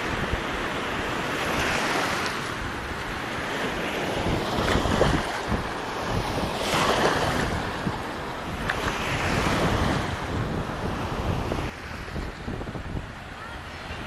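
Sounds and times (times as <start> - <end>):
water splashing and sloshing: 0.0 - 10.3
wind buffeting microphone: 0.0 - 14.0.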